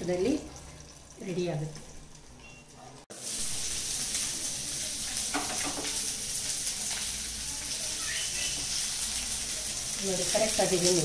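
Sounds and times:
fish sizzling in oil: 0:00.0 - 0:11.0.

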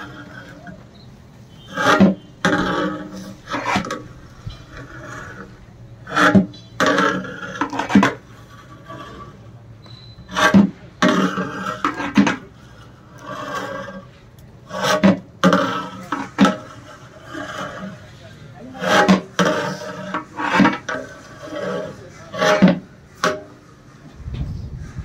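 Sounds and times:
metal paddle scraping rice pot: 0:00.0 - 0:24.0.

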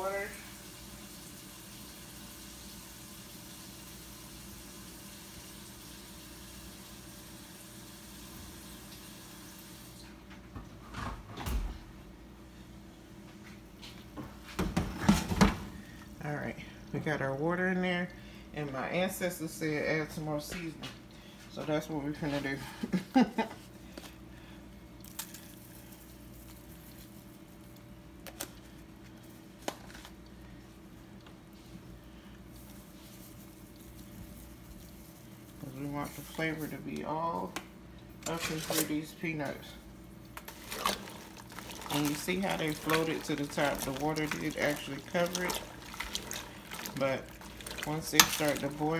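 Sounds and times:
faint steady hum: 0:00.0 - 0:48.9
tap water running into pot: 0:40.3 - 0:48.9.

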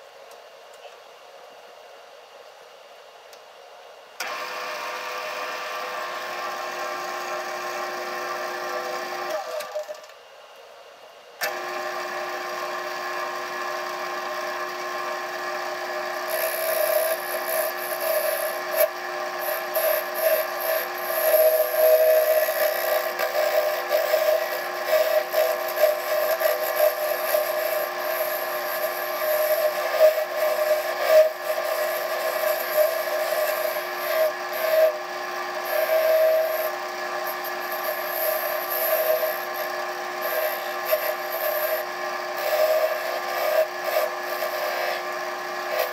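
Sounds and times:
wood lathe humming: 0:04.2 - 0:10.0, 0:11.4 - 0:45.9
abrasive rasping on spinning wood: 0:16.2 - 0:45.9.

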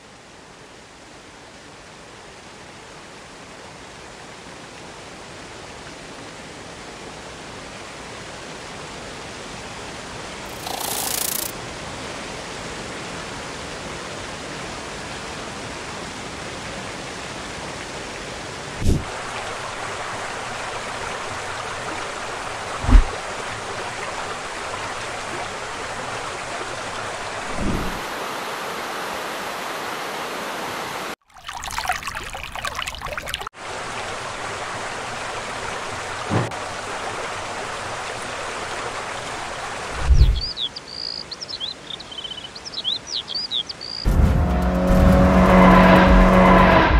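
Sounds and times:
low thumps: 0:22.8 - 0:23.2.

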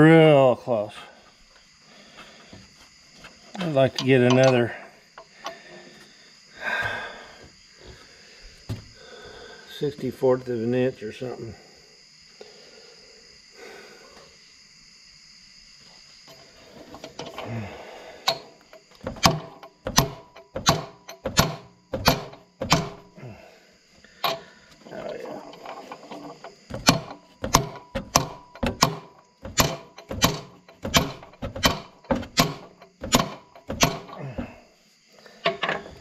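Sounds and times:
hammer striking metal: 0:26.8 - 0:34.1.

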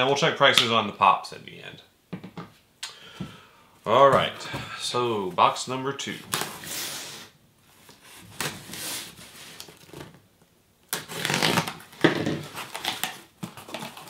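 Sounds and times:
blade slicing packing tape: 0:10.9 - 0:11.8.

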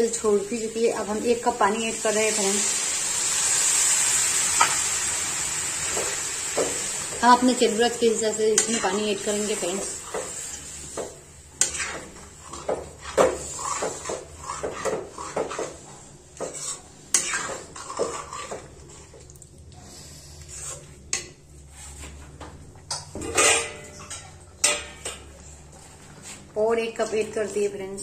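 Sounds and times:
metal spatula scraping a pan: 0:07.6 - 0:19.2, 0:20.3 - 0:21.0, 0:23.2 - 0:25.0.

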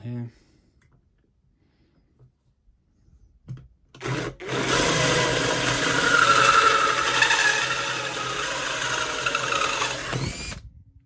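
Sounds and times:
cordless drill motor hum: 0:04.0 - 0:10.7.

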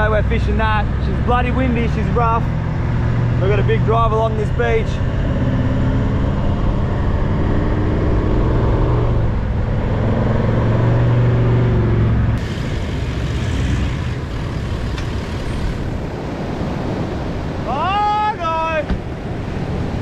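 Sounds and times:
wind: 0:00.0 - 0:20.0
vehicle engine running: 0:09.2 - 0:16.4
surf: 0:12.4 - 0:20.0.

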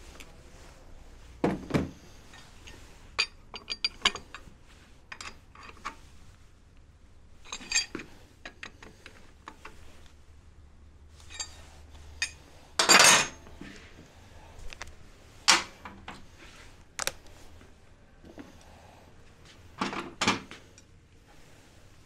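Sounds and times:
metal tools clinking on workbench: 0:02.3 - 0:04.4, 0:07.5 - 0:08.8, 0:11.2 - 0:11.6, 0:12.2 - 0:13.5.

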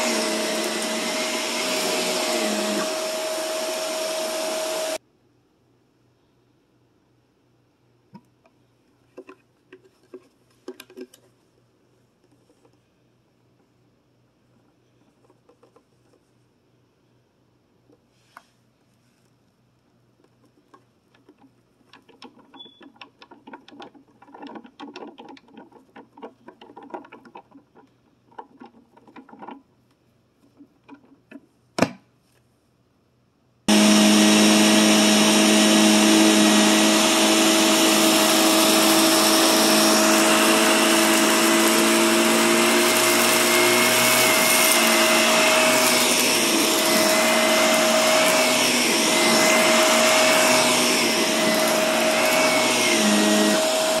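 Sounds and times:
vacuum cleaner running on carpet: 0:00.0 - 0:05.0, 0:33.7 - 0:54.0.

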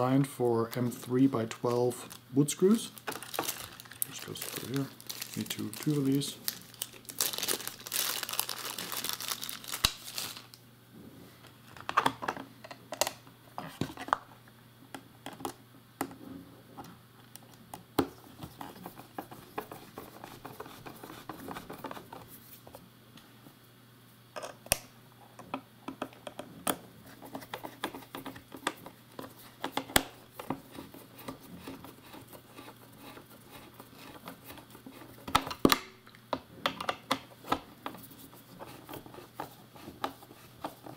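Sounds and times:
crinkling rustle: 0:00.6 - 0:10.6.

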